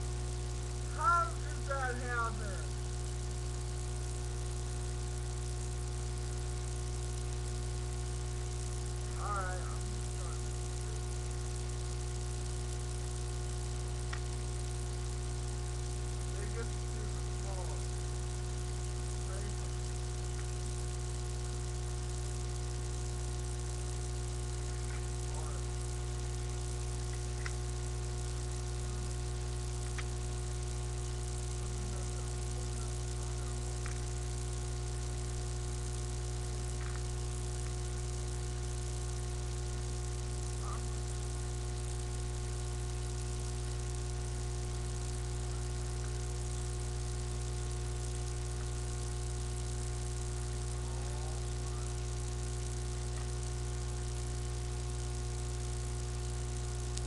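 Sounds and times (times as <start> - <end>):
electrical hum: 0.0 - 57.0
faint clicks: 14.1 - 14.4, 27.0 - 27.6, 29.8 - 30.2, 33.8 - 34.2.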